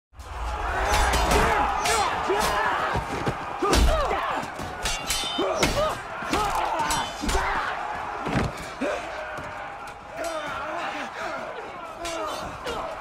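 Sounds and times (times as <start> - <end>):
men shouting and yelling: 0.2 - 13.0
swords clashing on shields: 0.9 - 7.6.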